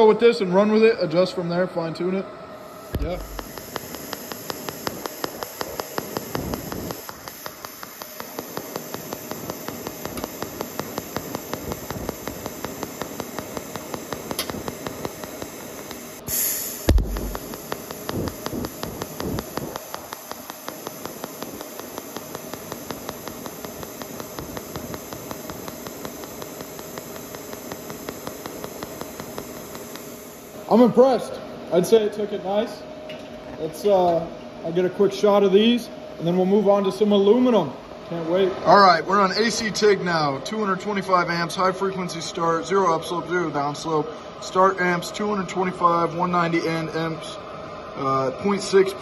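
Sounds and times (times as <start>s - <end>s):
welding arc buzzing: 2.7s - 30.9s
louder hiss: 2.9s - 30.7s.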